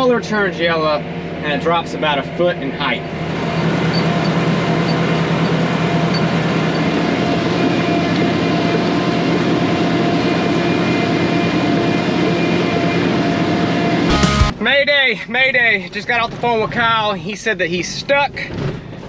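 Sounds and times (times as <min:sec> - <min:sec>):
tractor engine drone: 0:00.0 - 0:19.0.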